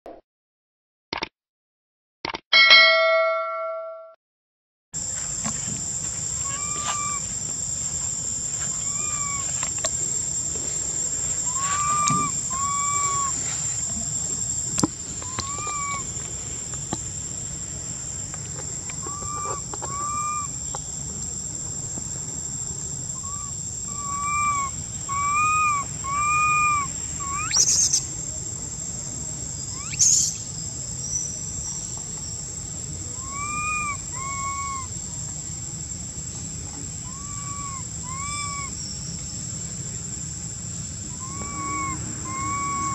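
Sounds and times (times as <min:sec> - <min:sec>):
insects droning: 0:05.0 - 0:42.9
whistled animal calls: 0:06.4 - 0:07.2, 0:08.7 - 0:09.5, 0:11.4 - 0:13.5, 0:15.2 - 0:16.1, 0:19.0 - 0:20.6, 0:23.2 - 0:28.1, 0:29.7 - 0:30.4, 0:33.1 - 0:34.9, 0:37.0 - 0:38.8, 0:41.1 - 0:42.9.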